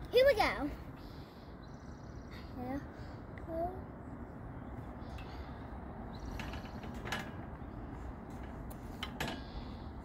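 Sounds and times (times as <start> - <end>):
clicks and knocks from metal bars: 6.2 - 7.6, 8.2 - 9.8.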